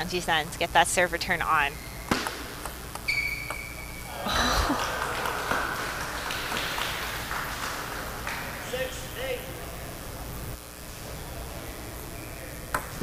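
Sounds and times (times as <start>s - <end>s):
shoe squeak on floor: 3.1s - 4.1s
spectators applauding: 4.1s - 9.2s.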